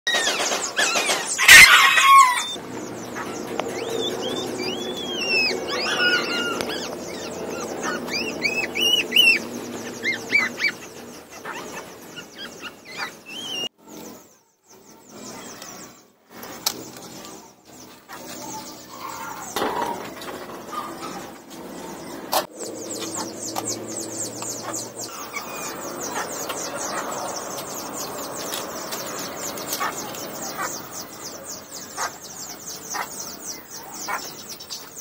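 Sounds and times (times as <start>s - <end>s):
puppies squeaking and whining: 0.1s - 13.7s.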